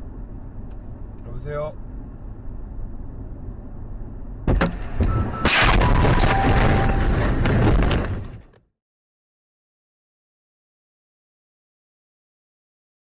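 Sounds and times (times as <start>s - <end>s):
road noise inside car: 0.0s - 8.6s
hard knocks: 4.5s - 8.3s
car crash crunching and scraping: 4.5s - 8.6s.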